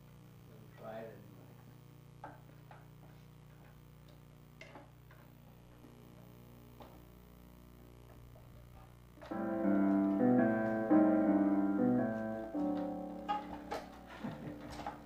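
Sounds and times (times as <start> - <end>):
piano chords: 9.2 - 15.0.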